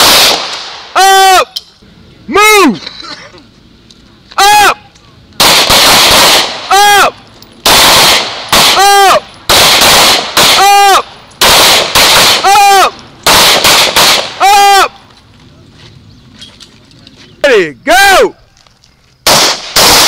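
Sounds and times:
pistol shots: 0.0 - 0.9, 5.4 - 6.7, 7.6 - 12.5, 13.2 - 14.4, 19.2 - 20.0.

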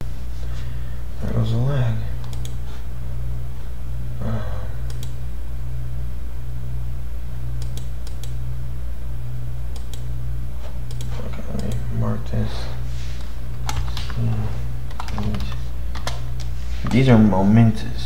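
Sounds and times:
computer hum: 0.0 - 18.0
computer mouse clicking: 2.2 - 2.6, 4.8 - 5.2, 7.6 - 8.4, 9.7 - 10.1, 10.9 - 11.8, 13.6 - 14.2, 14.9 - 17.0.

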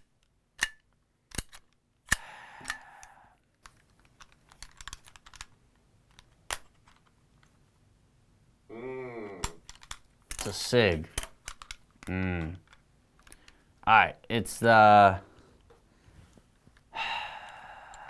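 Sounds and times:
pistol metal clicks: 0.0 - 5.5, 9.4 - 10.5, 11.1 - 12.1
brief vocal sound: 8.7 - 9.6.

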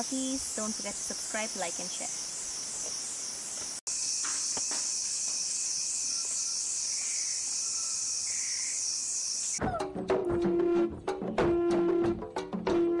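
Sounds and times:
insects trilling: 0.0 - 9.6.

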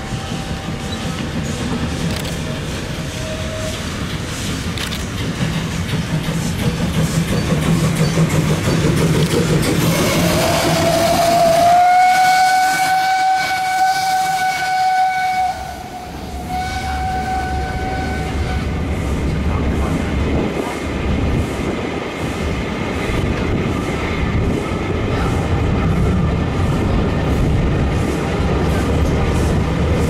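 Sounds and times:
steam locomotive whistle: 0.0 - 1.2, 2.8 - 4.1, 9.8 - 18.8
train coaches rumbling on rails: 0.0 - 30.0.

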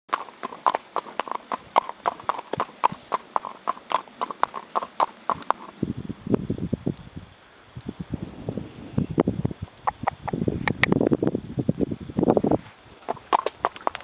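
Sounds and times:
horse hooves on tarmac: 0.1 - 5.8, 9.2 - 11.2, 12.2 - 14.0
dull low sound: 5.8 - 12.6.

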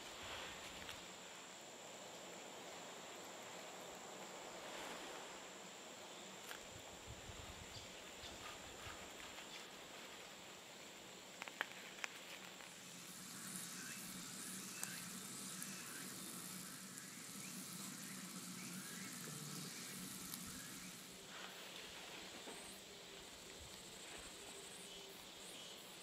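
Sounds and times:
fish sizzling in a pan: 12.7 - 21.3.

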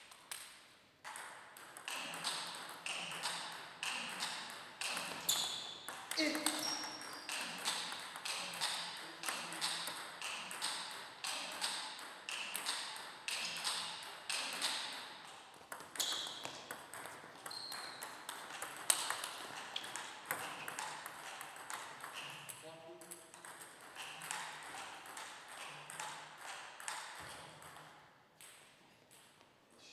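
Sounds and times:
table tennis ball clicking: 15.7 - 29.3.

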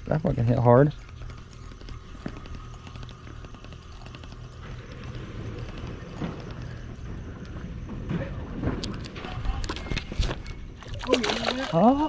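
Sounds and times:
fishing reel ticking: 0.0 - 7.0.

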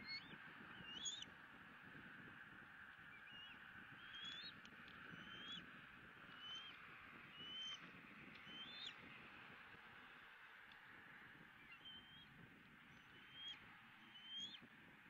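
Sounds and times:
eagle whistled calls: 0.0 - 1.2, 3.1 - 4.6, 7.4 - 7.8, 8.4 - 8.9, 11.6 - 12.3, 13.1 - 14.6.

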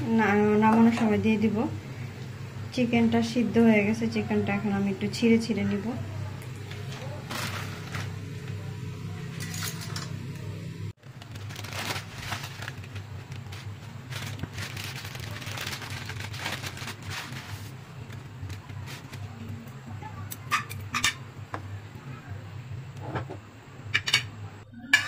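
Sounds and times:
gas burner low hum: 0.0 - 25.0
broth boiling and bubbling: 10.9 - 20.2.

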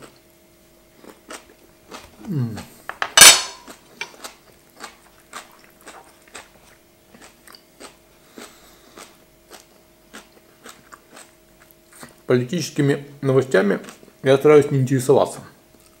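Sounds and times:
close chewing with mouth smacks: 1.0 - 2.8, 3.6 - 12.3, 15.7 - 16.0.

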